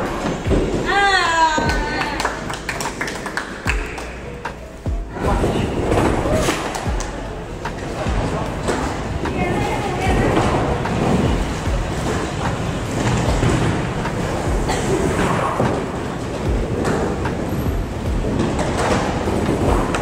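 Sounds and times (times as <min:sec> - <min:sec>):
bowling pins clattering: 0:01.6 - 0:20.0
bowling balls rumbling down lanes: 0:05.1 - 0:20.0.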